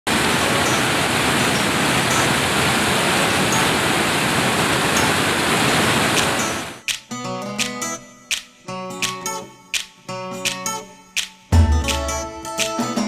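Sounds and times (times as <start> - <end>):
creek water rushing over rocks: 0.1 - 6.8.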